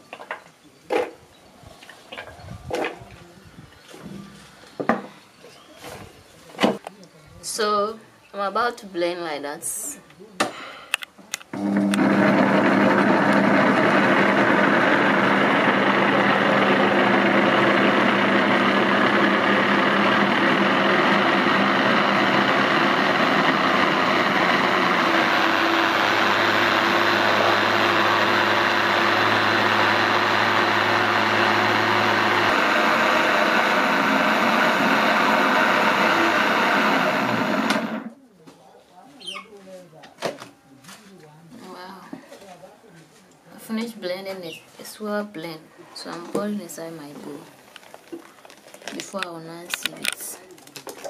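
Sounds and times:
blender running: 0:11.5 - 0:38.1.

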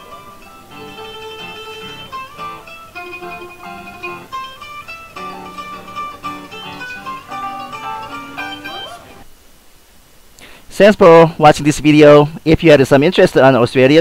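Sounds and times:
guitar and ukulele plucked tune: 0:00.0 - 0:09.2.

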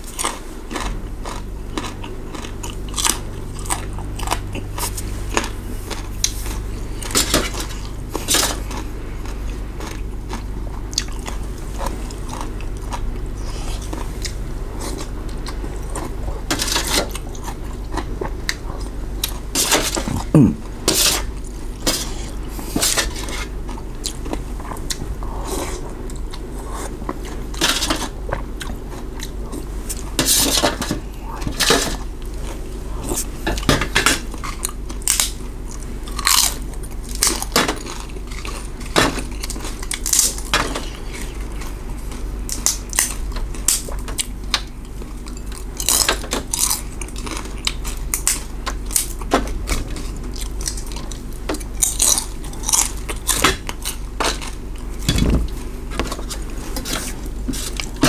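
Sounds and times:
chewing and slurping: 0:00.0 - 0:58.0.

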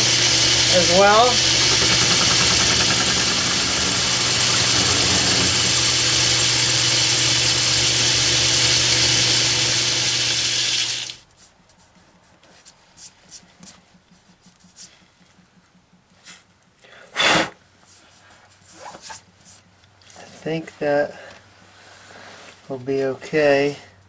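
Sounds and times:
hissing metal cut: 0:00.0 - 0:11.2
lathe motor hum: 0:00.0 - 0:11.2.

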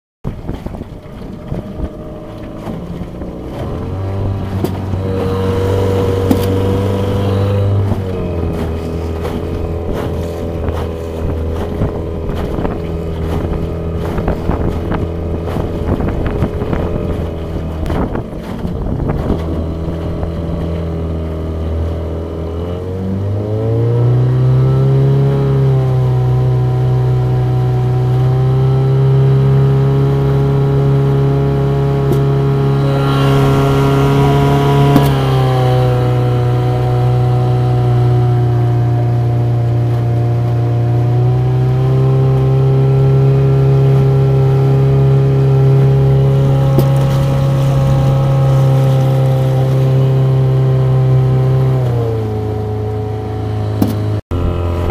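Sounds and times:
outboard motor running: 0:00.2 - 0:54.9
wind noise on microphone: 0:00.2 - 0:54.9.

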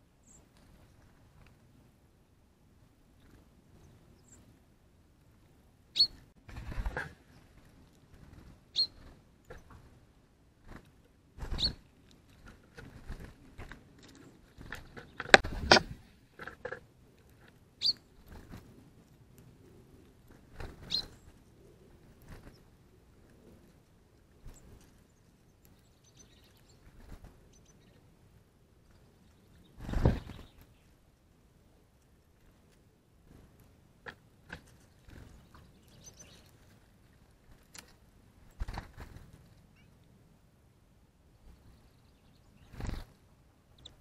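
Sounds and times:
birds pecking and scuffling: 0:00.2 - 0:02.0, 0:02.8 - 0:44.0
faint high bird chirps: 0:05.9 - 0:06.2, 0:08.7 - 0:09.1, 0:11.5 - 0:11.8, 0:17.8 - 0:18.1, 0:20.8 - 0:21.3, 0:24.5 - 0:26.9, 0:35.0 - 0:36.6
short high bird chirp: 0:06.0 - 0:06.2, 0:08.8 - 0:09.0, 0:17.8 - 0:18.0
bird chips and clicks: 0:08.3 - 0:09.8, 0:11.5 - 0:12.4, 0:17.4 - 0:18.5, 0:20.7 - 0:21.5, 0:24.4 - 0:28.0, 0:34.5 - 0:36.7.

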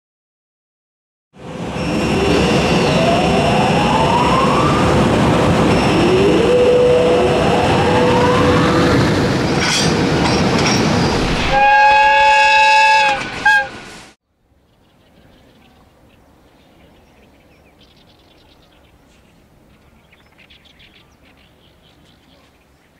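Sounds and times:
train rumble and wheel clatter: 0:01.4 - 0:14.2
train horn: 0:11.4 - 0:13.9.

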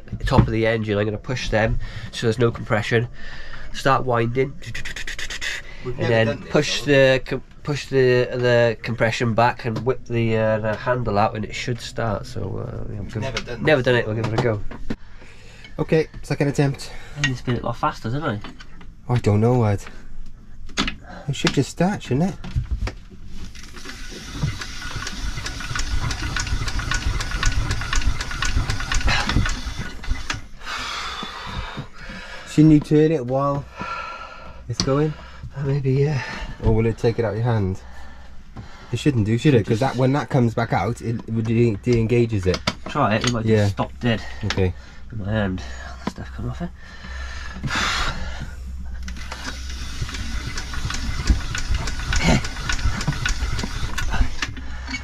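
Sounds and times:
diesel engine cranking by hand: 0:23.5 - 0:31.3, 0:45.6 - 0:55.0.

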